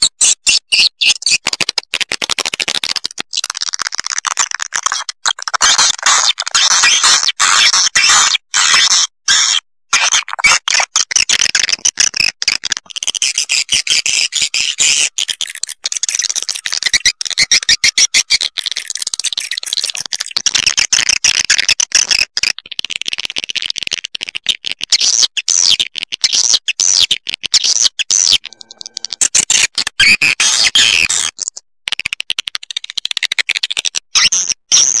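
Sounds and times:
swiftlets twittering chirps: 0:13.1 - 0:20.0.

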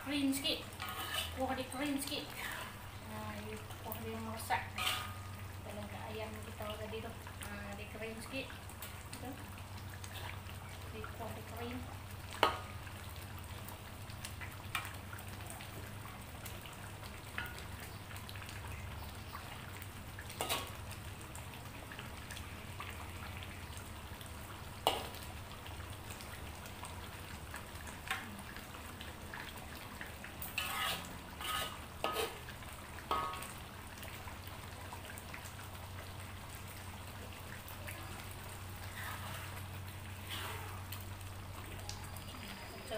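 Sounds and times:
sauce simmering and sizzling: 0:00.0 - 0:42.9
spatula scraping a wok: 0:00.5 - 0:02.8, 0:04.6 - 0:05.3, 0:20.4 - 0:20.8, 0:30.4 - 0:32.4, 0:38.8 - 0:40.9.

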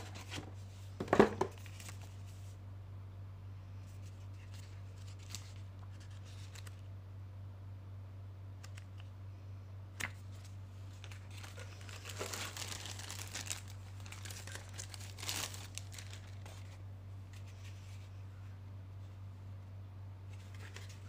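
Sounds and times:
plastic bag crinkling: 0:10.9 - 0:16.8.

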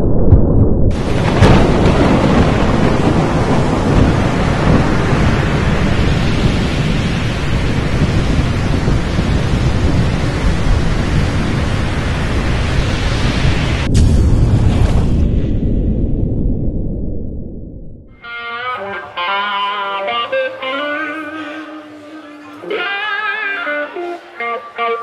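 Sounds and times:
sudden hit: 0:00.0 - 0:03.3, 0:13.8 - 0:18.2
thunder rumbling: 0:00.0 - 0:18.4
heavy rain: 0:00.9 - 0:14.0, 0:18.2 - 0:25.0.

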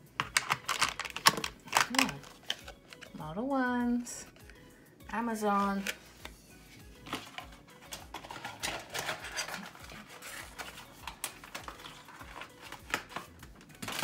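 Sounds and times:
packaging crinkling: 0:00.2 - 0:03.2, 0:07.1 - 0:14.0.

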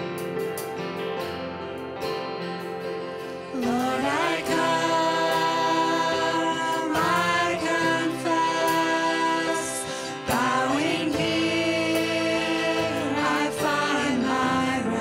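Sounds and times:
sustained instrumental accompaniment: 0:00.0 - 0:15.0
person singing: 0:03.5 - 0:15.0.

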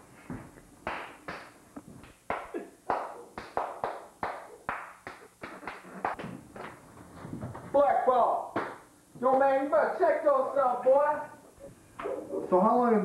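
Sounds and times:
hands slapping in a scuffle: 0:00.3 - 0:07.7.

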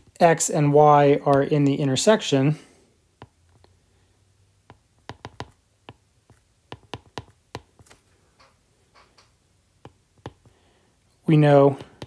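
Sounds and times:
stylus tapping on screen: 0:01.2 - 0:02.0, 0:03.2 - 0:03.8, 0:04.6 - 0:10.6, 0:11.7 - 0:12.0.

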